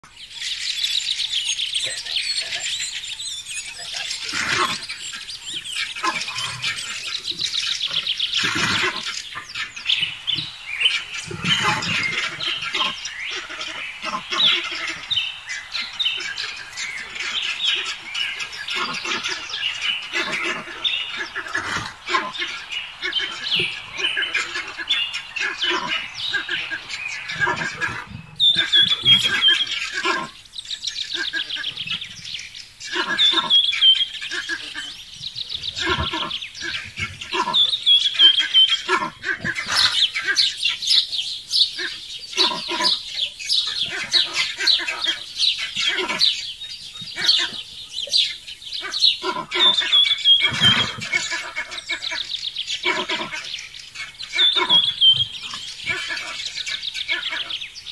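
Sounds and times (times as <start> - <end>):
bird calling with falling trill: 0.2 - 32.0, 47.2 - 57.9.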